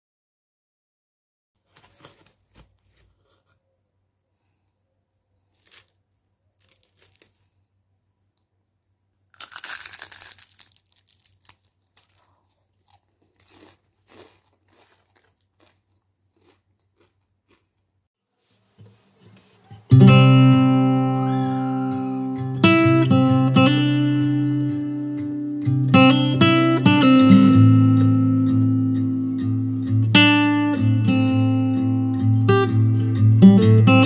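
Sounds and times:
fried pastry crunching: 5.3 - 7.8, 9.2 - 17.9.

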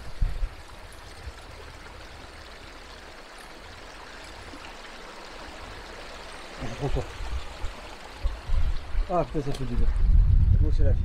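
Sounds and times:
mountain stream running: 0.0 - 10.2.

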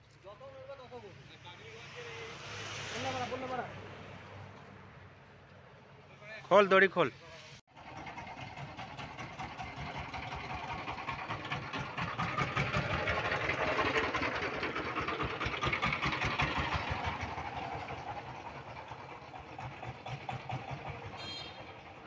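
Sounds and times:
diesel van driving past: 7.7 - 22.0.

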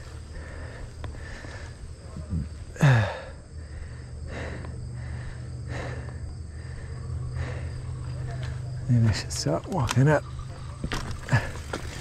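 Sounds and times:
person breathing heavily: 0.0 - 8.6
insects trilling: 0.0 - 12.0.

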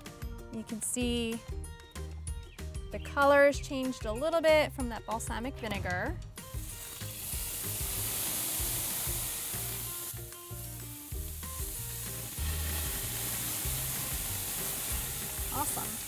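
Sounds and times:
steaks sizzling on a grill: 6.4 - 16.0.

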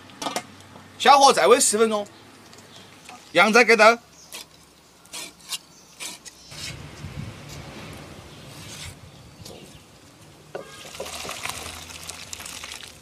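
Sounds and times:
broth pouring into clay pot: 10.6 - 13.0.

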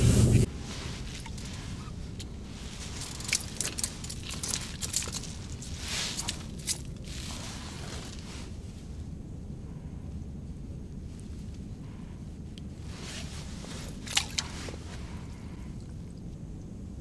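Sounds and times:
steady low rumble: 0.0 - 17.0
hands handling a fish: 0.8 - 8.3, 13.0 - 16.2.

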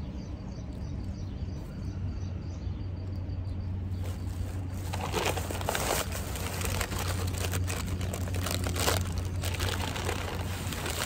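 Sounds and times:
paper wrapping crinkling: 4.0 - 11.0.

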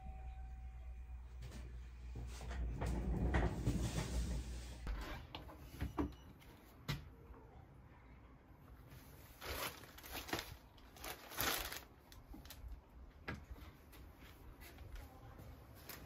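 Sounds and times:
plastic bag crinkling: 9.2 - 12.8.

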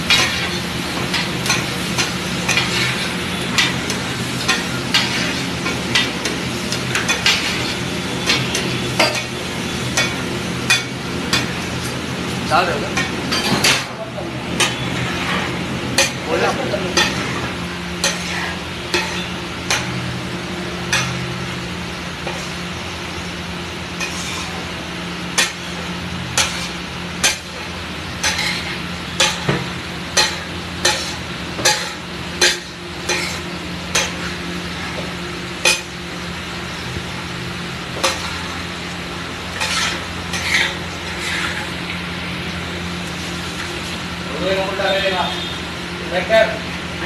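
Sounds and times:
metal spatula scraping griddle: 0.1 - 9.4, 14.5 - 20.2, 22.2 - 22.6, 24.0 - 24.7, 25.4 - 29.5, 30.2 - 35.9, 38.0 - 38.6, 39.5 - 41.9.

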